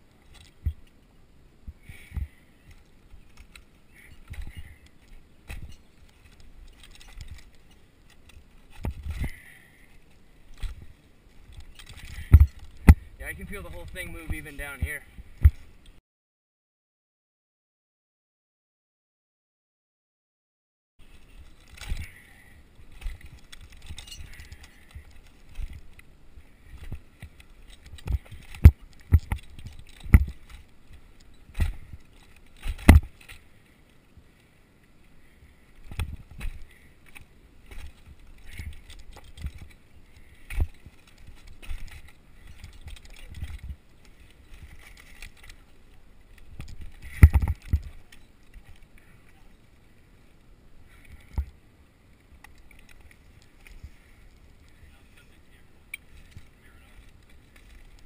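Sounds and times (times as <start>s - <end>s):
clinking gear: 2.7s - 10.8s, 11.4s - 14.8s, 21.1s - 22.3s, 22.9s - 26.1s, 26.7s - 33.4s, 35.8s - 49.7s
climbing spikes knocking into bark: 10.5s - 15.7s, 26.7s - 33.4s, 35.8s - 48.8s.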